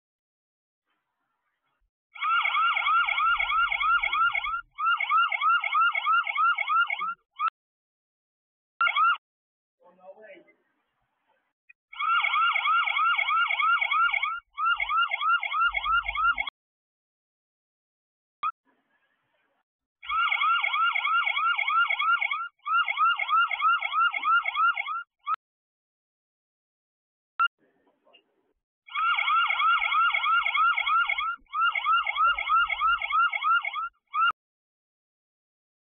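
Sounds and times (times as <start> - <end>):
alarm siren whooping: 2.2 - 7.5, 8.8 - 9.2, 11.9 - 16.5, 20.0 - 25.4, 28.9 - 34.4.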